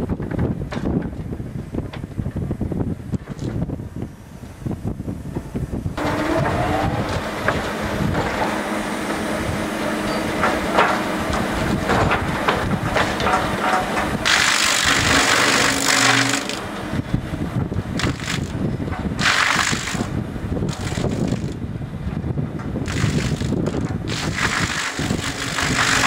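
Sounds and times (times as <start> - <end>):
steady machine hum: 3.7 - 26.0
knocks and clunks of logs: 10.4 - 16.9, 18.0 - 20.1.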